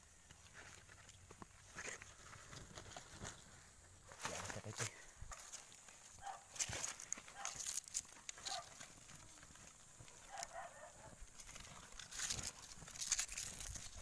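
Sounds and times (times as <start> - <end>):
cardboard crinkling and rustling: 5.4 - 14.0.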